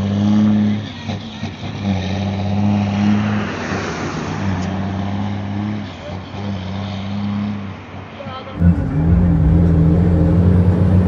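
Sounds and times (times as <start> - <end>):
road and wind noise: 0.0 - 11.0
vehicle engine droning: 8.6 - 11.0.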